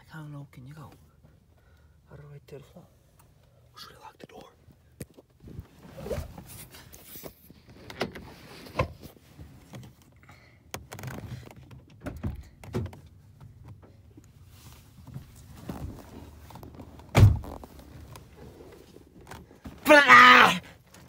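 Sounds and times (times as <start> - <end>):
body thumps against car seat: 15.6 - 18.2.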